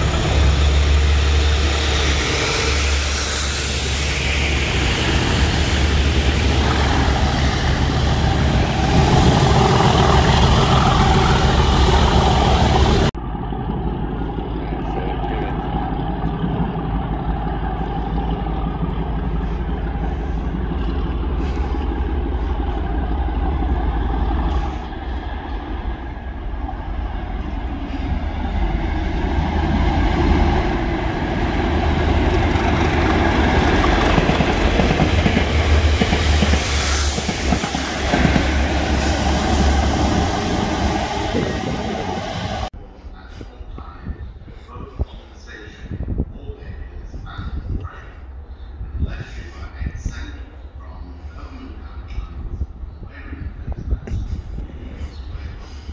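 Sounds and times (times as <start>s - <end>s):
wagons passing: 0.0s - 43.0s
approaching train engine: 0.0s - 55.9s
diesel locomotive engine: 0.0s - 55.9s.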